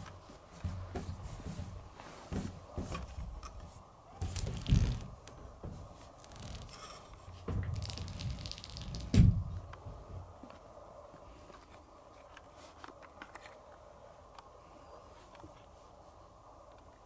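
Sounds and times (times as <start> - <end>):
low thump: 9.0 - 9.6.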